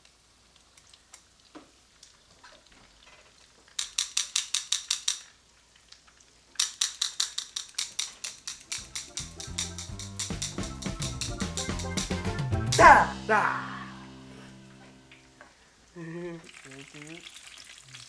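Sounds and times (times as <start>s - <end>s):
metal tongs clacking: 3.8s - 5.3s, 6.6s - 12.0s
background music with drum beat: 8.6s - 14.6s.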